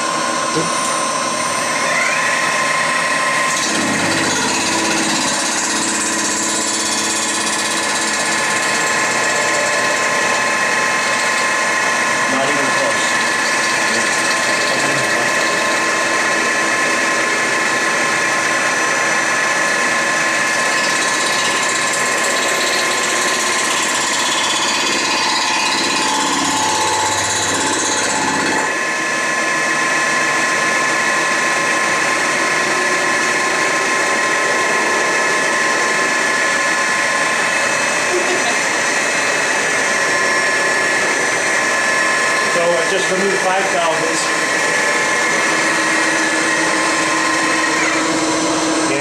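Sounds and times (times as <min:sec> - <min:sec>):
milling machine cutter whine: 0:00.0 - 0:49.0.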